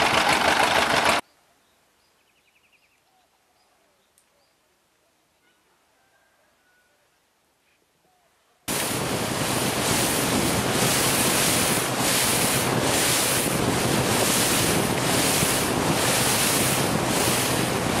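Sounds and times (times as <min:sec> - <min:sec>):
sea waves: 0:08.7 - 0:18.0
wind buffeting microphone: 0:08.7 - 0:18.0.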